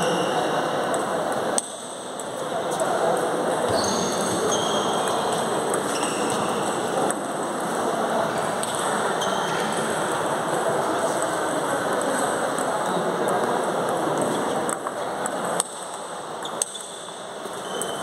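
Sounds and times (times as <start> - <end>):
sports hall noise: 0.0 - 18.0
short high-pitched squeaks: 3.7 - 5.2, 5.9 - 6.6, 17.6 - 18.0.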